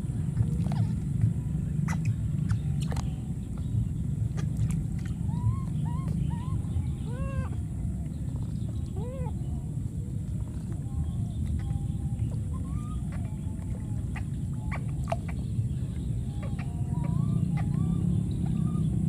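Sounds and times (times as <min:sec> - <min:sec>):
low rumble: 0:00.0 - 0:19.0
baby monkey high-pitched calls: 0:05.2 - 0:07.6, 0:08.9 - 0:09.6, 0:11.6 - 0:15.4, 0:16.2 - 0:19.0.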